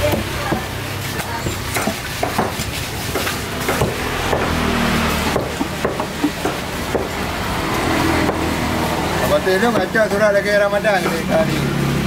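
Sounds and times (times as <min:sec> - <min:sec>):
cleaver chopping on wooden block: 0:01.4 - 0:04.6, 0:05.3 - 0:07.3, 0:08.2 - 0:08.5, 0:09.7 - 0:10.0.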